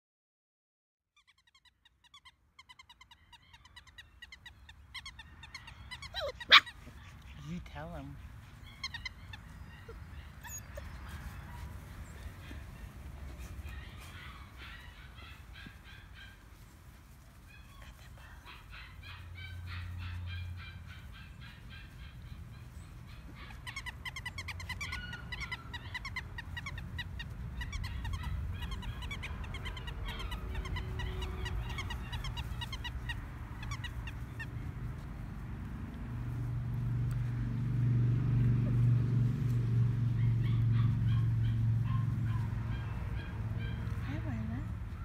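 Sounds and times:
birds chirping: 0:01.3 - 0:35.4.

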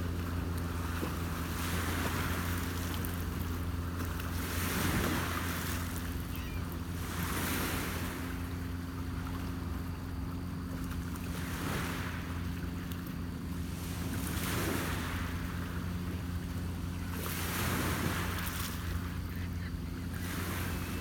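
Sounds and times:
low motor hum: 0:00.0 - 0:21.0
waves washing against rocky shore: 0:13.6 - 0:21.0.

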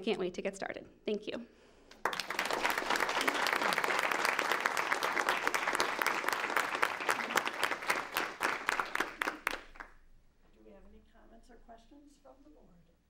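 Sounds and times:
small group clapping: 0:01.9 - 0:10.0.

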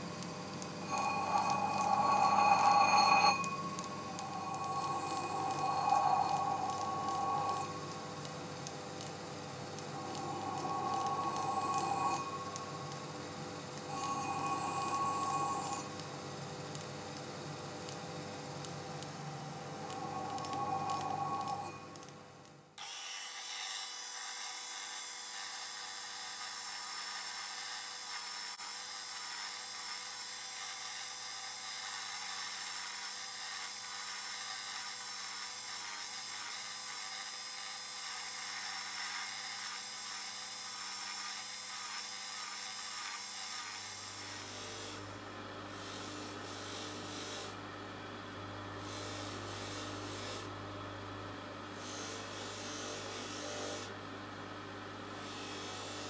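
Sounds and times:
rotary tool whining: 0:00.0 - 0:16.8, 0:18.7 - 0:22.2
polishing tip scratching metal: 0:00.8 - 0:09.1, 0:09.8 - 0:16.2, 0:19.4 - 0:22.1
polishing motor humming: 0:00.8 - 0:16.2, 0:19.3 - 0:22.1.

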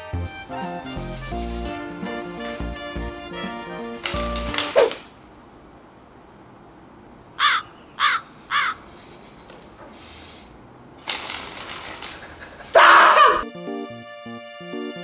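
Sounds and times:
rustling noise: 0:00.4 - 0:05.2, 0:08.3 - 0:12.8
crow cawing: 0:07.4 - 0:08.8.

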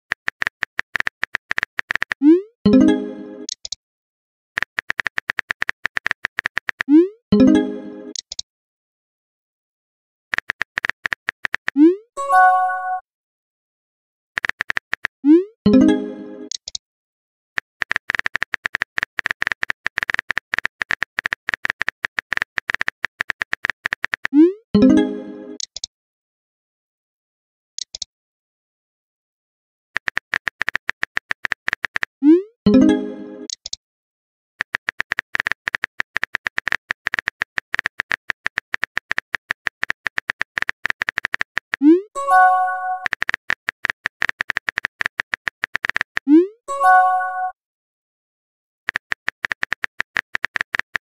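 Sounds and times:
phone keyboard typing clicks: 0:00.1 - 0:02.2, 0:03.4 - 0:03.8, 0:04.6 - 0:06.9, 0:08.1 - 0:08.4, 0:10.3 - 0:11.8, 0:14.4 - 0:15.1, 0:16.5 - 0:16.8, 0:17.6 - 0:24.4, 0:30.0 - 0:32.1, 0:33.5 - 0:33.8, 0:34.6 - 0:46.3, 0:48.9 - 0:51.0.

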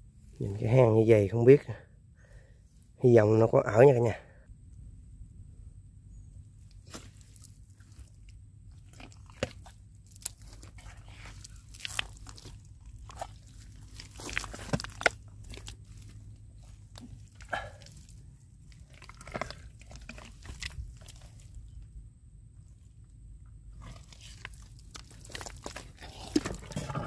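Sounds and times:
low steady rumble: 0:00.0 - 0:27.0
hands squelching in wet mud: 0:06.8 - 0:21.8, 0:23.8 - 0:26.9.

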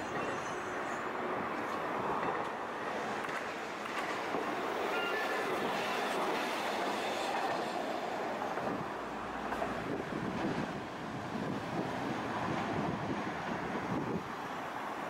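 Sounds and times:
faint wheel squeal: 0:00.0 - 0:01.0, 0:04.9 - 0:06.2
streetcar wheels clattering on rails: 0:00.0 - 0:15.0.

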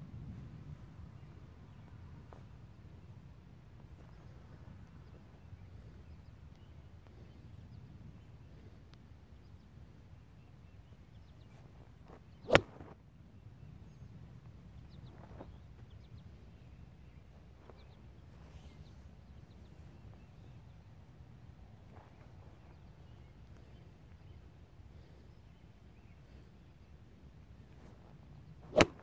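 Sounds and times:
faint outdoor background noise: 0:00.0 - 0:29.0
golf club striking ball: 0:28.7 - 0:29.0.

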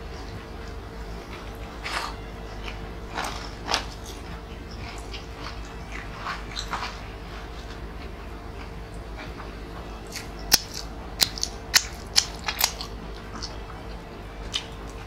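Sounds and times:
steady low hum: 0:00.0 - 0:15.0
wet chewing and lip smacks: 0:10.0 - 0:13.6, 0:14.5 - 0:15.0.

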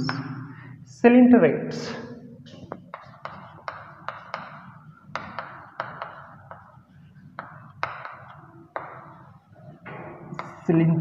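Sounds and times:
chalk scratching on chalkboard: 0:02.5 - 0:09.5
chalk tapping on chalkboard: 0:02.5 - 0:10.7.

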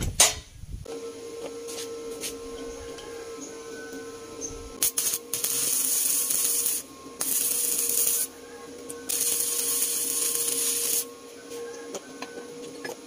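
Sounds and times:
welding arc crackling hiss: 0:04.8 - 0:08.3, 0:09.1 - 0:11.1.

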